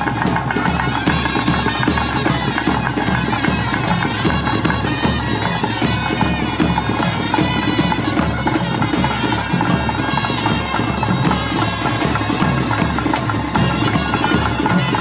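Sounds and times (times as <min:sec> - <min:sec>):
reed wind instrument melody: 0:00.0 - 0:15.0
steady drumming: 0:00.0 - 0:15.0.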